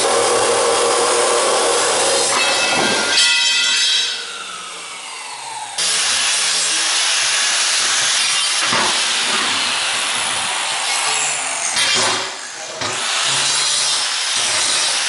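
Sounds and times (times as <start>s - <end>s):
angle grinder grinding steel: 0.0s - 4.5s
chop saw motor winding down: 3.7s - 14.1s.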